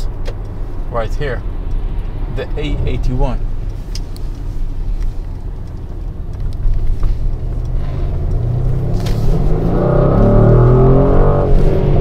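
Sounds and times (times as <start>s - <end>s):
car engine: 0.0s - 12.0s
low road rumble: 0.0s - 12.0s.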